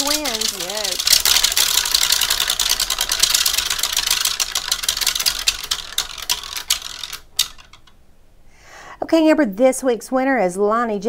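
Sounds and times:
prize wheel pointer ticking: 0.0 - 7.9.

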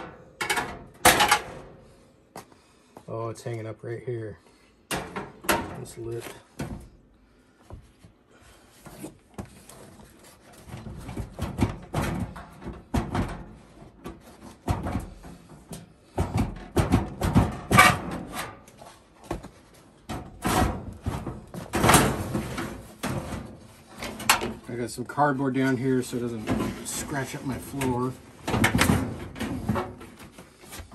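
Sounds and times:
sheet metal scraping and rattling: 0.0 - 2.0, 10.0 - 19.0, 20.0 - 24.8, 25.5 - 30.6.

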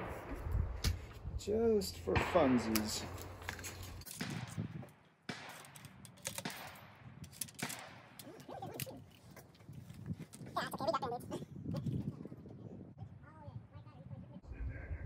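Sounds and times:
metallic clicks and scrapes of musket: 3.0 - 4.6, 5.4 - 10.4.

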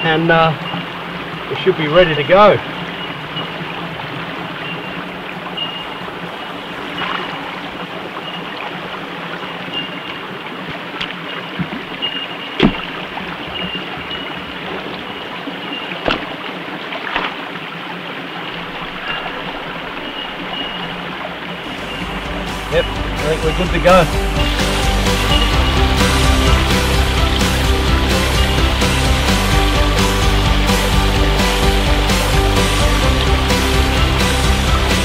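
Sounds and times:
creek water running over rocks: 0.0 - 35.0
stones knocking: 12.6 - 13.0, 16.0 - 16.4.

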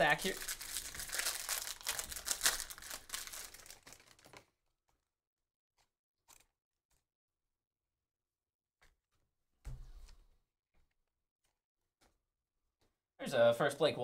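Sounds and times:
foil wrapper tearing and crinkling: 0.0 - 4.4.

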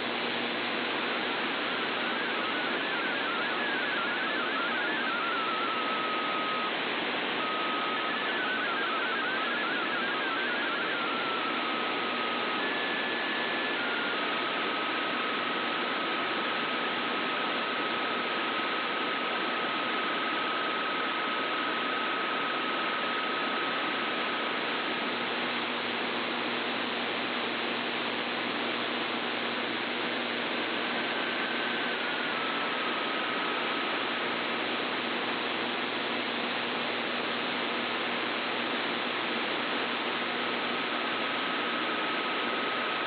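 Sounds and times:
radio static hiss: 0.0 - 43.0
steady radio tone: 0.1 - 43.0
faint warbling data tones: 1.5 - 16.5, 30.1 - 33.8.

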